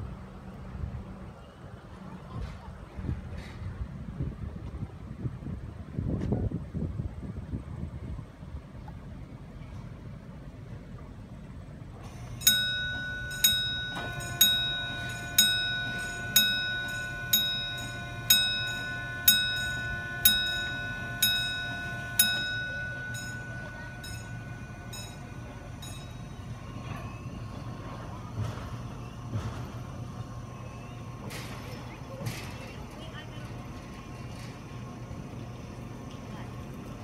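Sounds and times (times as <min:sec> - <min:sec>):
low steady hum: 0:06.8 - 0:37.0
crossing warning bell: 0:12.0 - 0:32.1.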